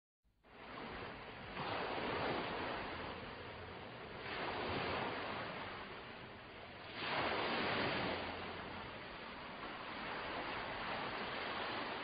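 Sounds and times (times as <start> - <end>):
ocean waves washing in: 0.4 - 12.0.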